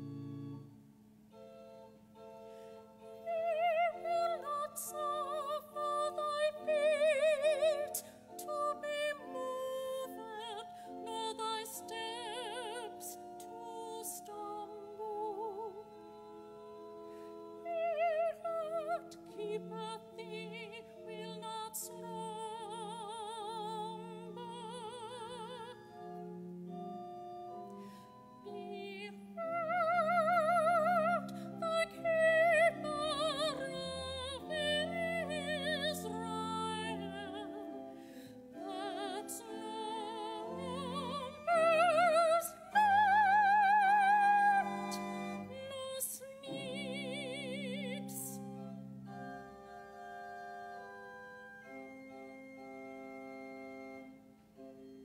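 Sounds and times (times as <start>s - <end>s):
held keyboard chords: 0.0s - 3.3s
person singing a hymn: 3.0s - 26.9s, 27.5s - 54.7s.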